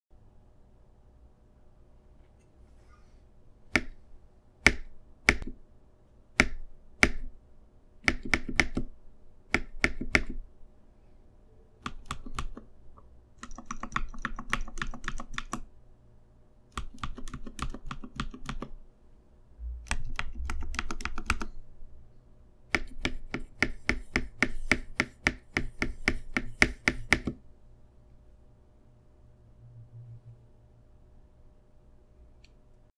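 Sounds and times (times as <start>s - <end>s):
mechanical keyboard typing: 11.8s - 12.7s, 13.4s - 15.7s, 16.7s - 18.8s, 19.9s - 21.6s.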